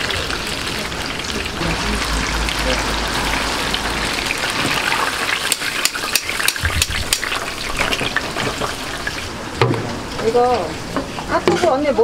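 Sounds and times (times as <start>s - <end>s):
food sizzling in deep fryer: 0.0s - 12.0s.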